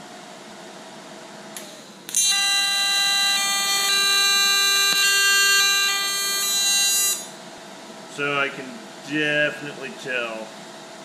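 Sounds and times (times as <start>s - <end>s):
welding arc buzzing: 1.6s - 7.4s.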